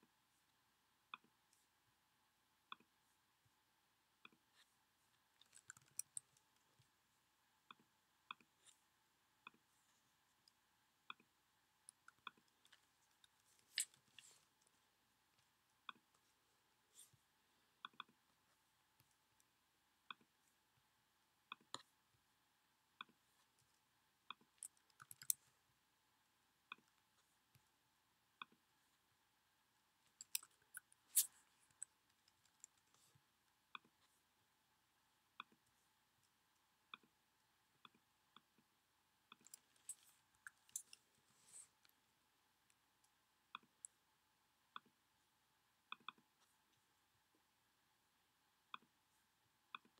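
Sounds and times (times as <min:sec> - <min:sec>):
computer mouse clicks: 0:05.4 - 0:06.9, 0:17.8 - 0:18.2, 0:23.0 - 0:25.5, 0:45.9 - 0:46.3.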